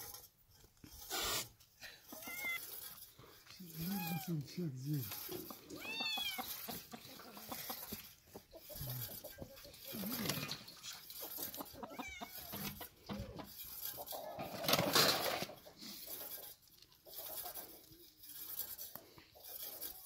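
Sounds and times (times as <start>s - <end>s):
chickens clucking: 3.7s - 18.1s.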